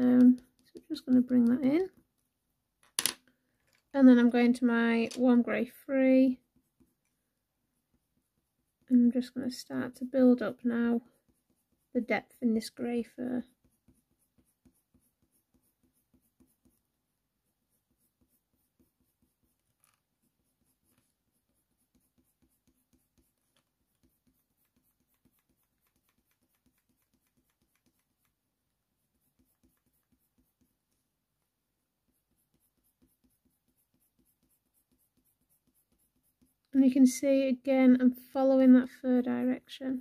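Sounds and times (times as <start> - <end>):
pencil scratching on paper: 0.0 - 2.3, 4.0 - 37.8.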